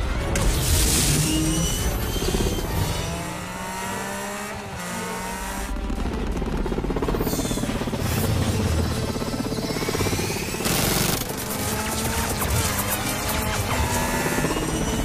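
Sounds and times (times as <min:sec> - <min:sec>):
dramatic orchestral music: 0:00.0 - 0:15.0
aircraft engines whining past: 0:05.5 - 0:15.0.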